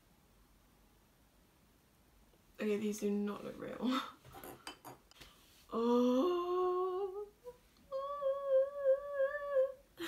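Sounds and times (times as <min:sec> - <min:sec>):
young woman humming: 0:05.7 - 0:10.0.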